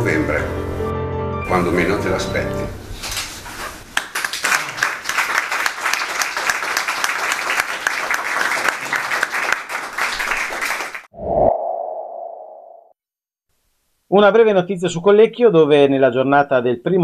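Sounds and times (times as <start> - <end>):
audience applauding: 3.9 - 11.1.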